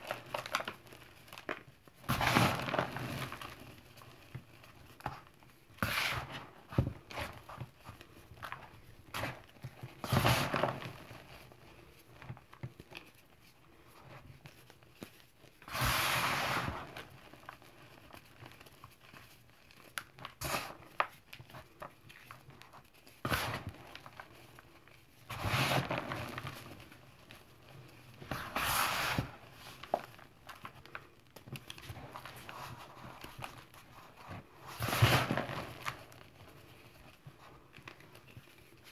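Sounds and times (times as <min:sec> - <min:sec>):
small crackles: 0:00.0 - 0:05.7, 0:16.8 - 0:28.4, 0:29.3 - 0:38.9.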